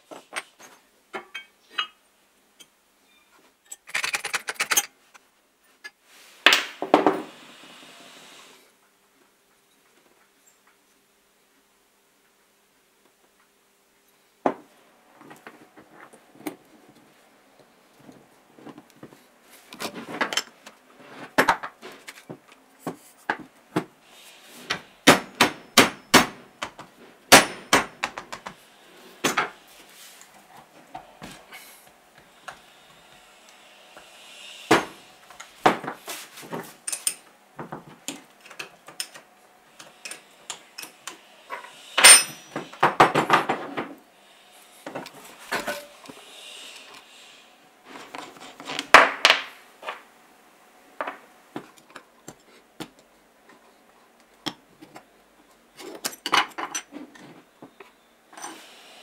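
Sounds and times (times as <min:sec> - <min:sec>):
metal parts clinking: 0:03.6 - 0:04.9, 0:42.0 - 0:42.5.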